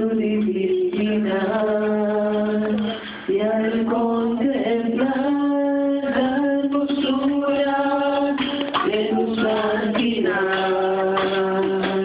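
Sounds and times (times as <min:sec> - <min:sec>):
group singing worship song: 0:00.0 - 0:12.0.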